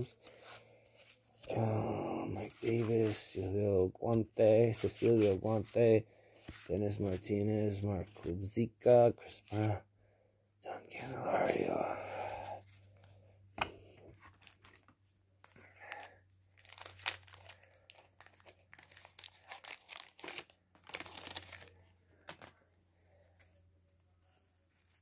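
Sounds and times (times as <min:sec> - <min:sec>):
wax paper tearing and crinkling: 0:16.0 - 0:21.7.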